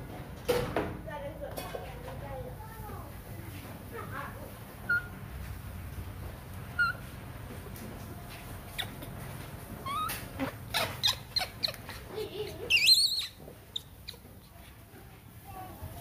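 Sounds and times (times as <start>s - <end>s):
baby monkey squeaking: 4.8s - 5.2s, 6.7s - 7.1s, 8.6s - 14.6s
baby monkey squealing: 4.8s - 5.2s, 6.7s - 7.1s, 8.7s - 14.5s.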